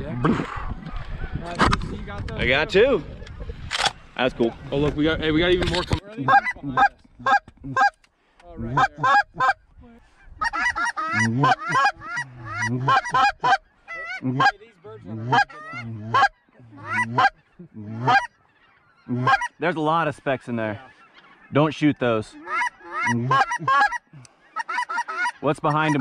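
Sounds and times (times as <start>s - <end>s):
geese honking: 6.2s - 8.0s, 8.6s - 26.0s.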